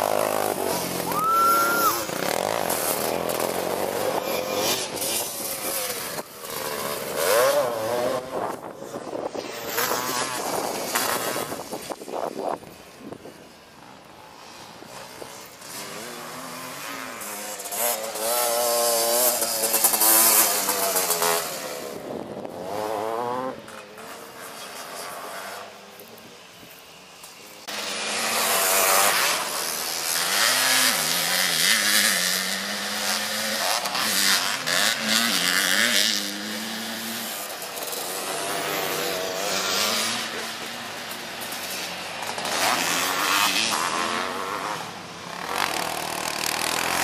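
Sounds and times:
racing engines revving: 0.0s - 11.9s, 27.6s - 47.0s.

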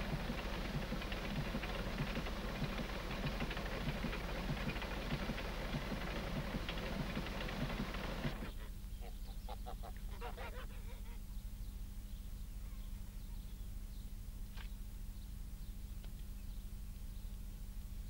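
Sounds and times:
steady low hum: 0.0s - 18.0s
fowl calling: 9.0s - 11.2s.

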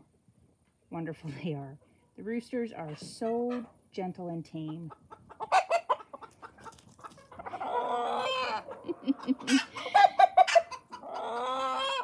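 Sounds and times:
chickens clucking: 2.8s - 12.0s.

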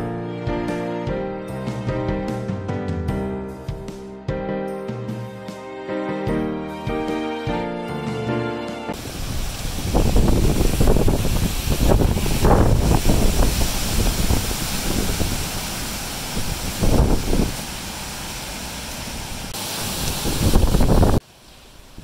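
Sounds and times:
wind gusting through trees: 8.9s - 22.0s
wind buffeting microphone: 9.0s - 17.6s, 19.4s - 21.2s
driving rain: 9.0s - 22.0s.

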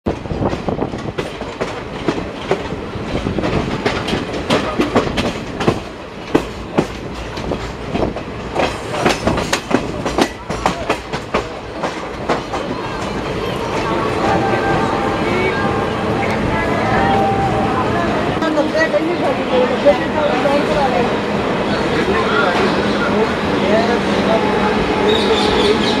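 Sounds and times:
train wheels clattering over rails: 0.1s - 14.1s
train running rumble: 0.1s - 26.0s.

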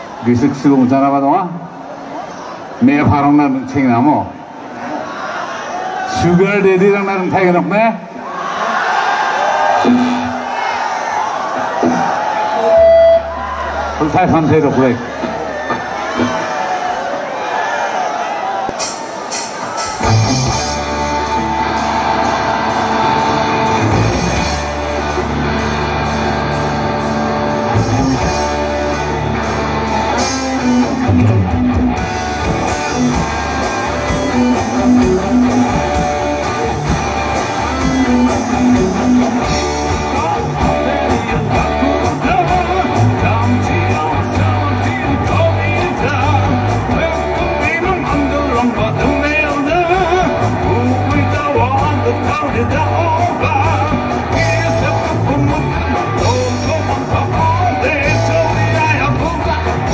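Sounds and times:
electric guitar: 9.6s - 10.6s, 11.5s - 16.6s, 18.8s - 59.9s
drum kit: 11.7s - 13.2s, 18.6s - 59.9s
bass guitar: 11.8s - 16.4s, 19.8s - 59.9s
man singing: 39.7s - 59.9s.

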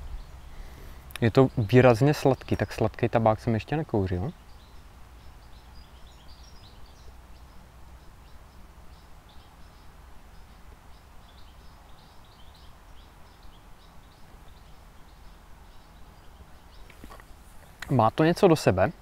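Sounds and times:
low outdoor rumble: 0.0s - 2.2s
small birds chirping: 0.0s - 19.0s.

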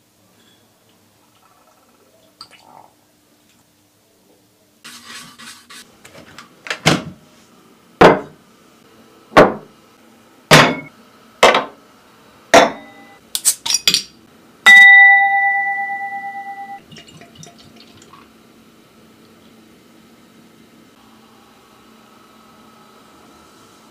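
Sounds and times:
stemmed glass ringing: 14.7s - 16.8s.

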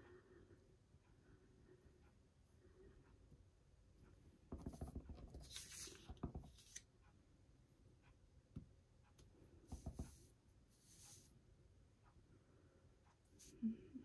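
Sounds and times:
paper rustling: 5.3s - 6.8s.

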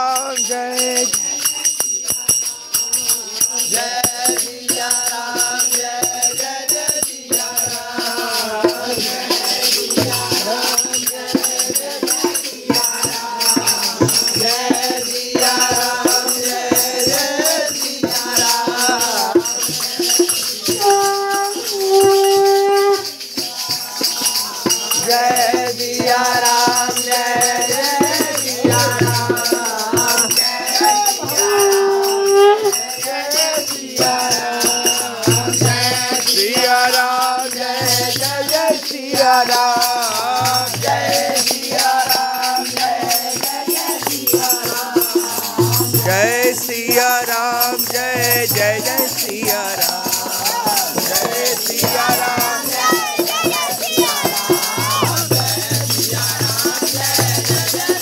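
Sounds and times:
jingling hand percussion: 0.0s - 58.0s
men chanting in unison: 0.0s - 58.0s.

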